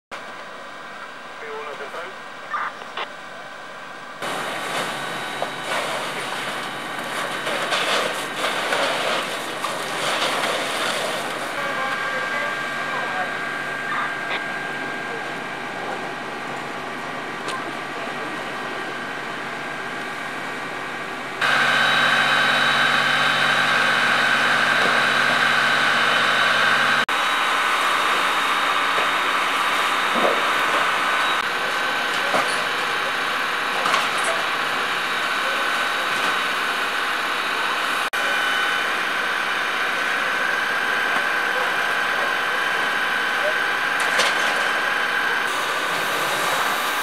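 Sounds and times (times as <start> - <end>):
fire engine pump whining: 0.2 - 47.0.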